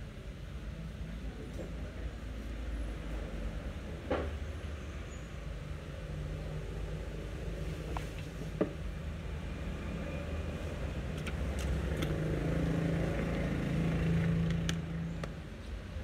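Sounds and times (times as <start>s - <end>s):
wire and tools clicking: 11.1s - 12.5s, 14.2s - 15.4s.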